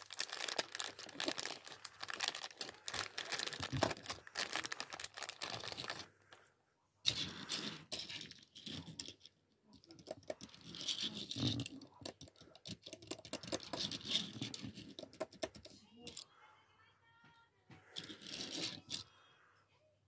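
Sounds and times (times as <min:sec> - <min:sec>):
fingers tapping toy car: 0:11.6 - 0:16.2.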